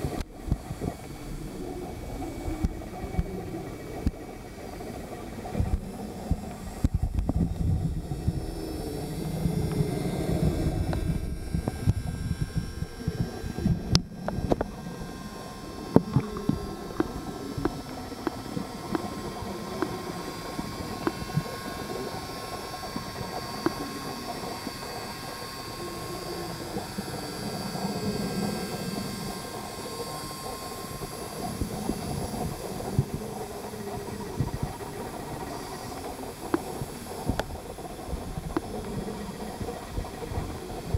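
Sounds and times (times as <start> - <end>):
faint electric motor whine: 0.0 - 40.9
muffled underwater rumbling: 0.0 - 40.9
underwater clicks and knocks: 10.4 - 14.8, 15.9 - 19.1.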